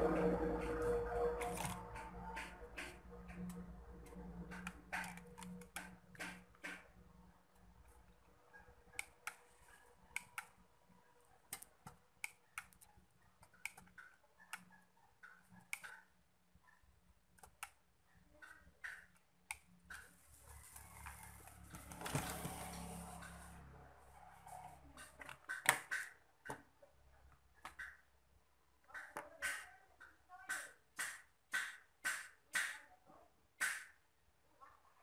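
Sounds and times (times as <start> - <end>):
small tools clicking and tapping: 0.6 - 7.0, 18.4 - 20.3.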